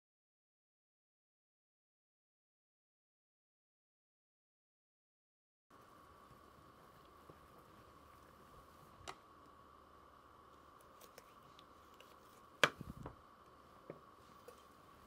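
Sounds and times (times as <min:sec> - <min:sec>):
faint steady hum: 0:05.7 - 0:15.0.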